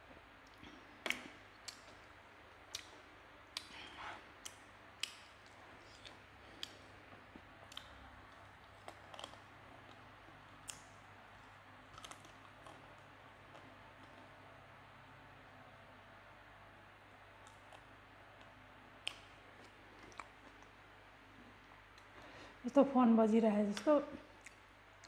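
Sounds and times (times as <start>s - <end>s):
wet chewing: 0.5s - 14.2s, 18.4s - 20.8s.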